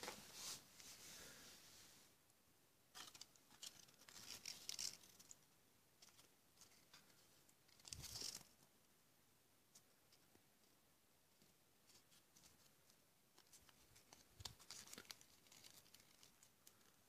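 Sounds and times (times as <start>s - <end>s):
paper rustling and crinkling: 2.9s - 5.4s, 6.0s - 8.7s, 11.8s - 17.0s.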